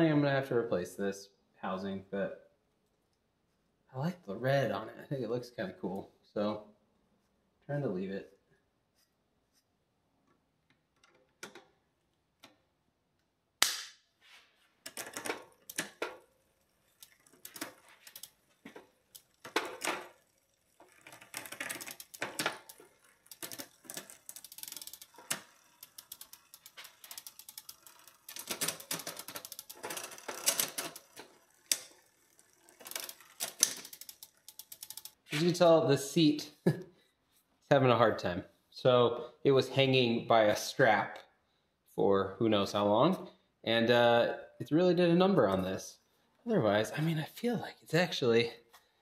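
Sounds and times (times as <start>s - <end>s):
bicycle freewheel rapid clicking: 14.9s - 35.2s.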